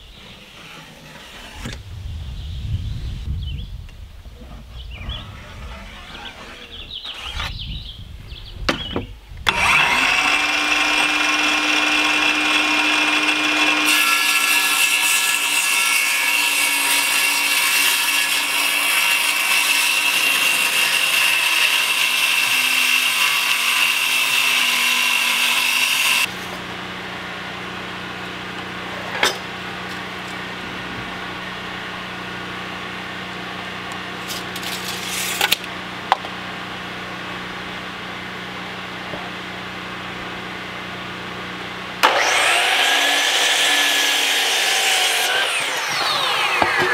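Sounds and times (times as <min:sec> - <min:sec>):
circular saw cutting plywood: 0:00.0 - 0:01.8, 0:04.5 - 0:07.6, 0:09.5 - 0:36.3, 0:42.0 - 0:46.9.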